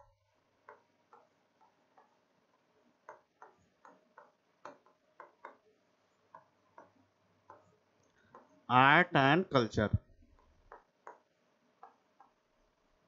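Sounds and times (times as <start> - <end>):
pen tapping on glass screen: 0.6 - 8.6, 10.2 - 12.4.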